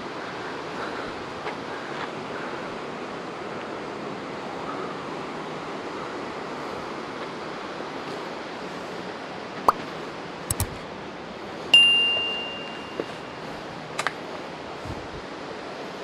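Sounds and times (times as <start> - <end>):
sharp clicks: 10.5 - 10.8
bell-like ding: 11.8 - 13.0.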